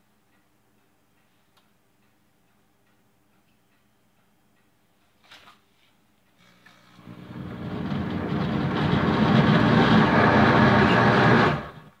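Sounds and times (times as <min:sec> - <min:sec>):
blender motor churning hum: 0:06.4 - 0:11.8.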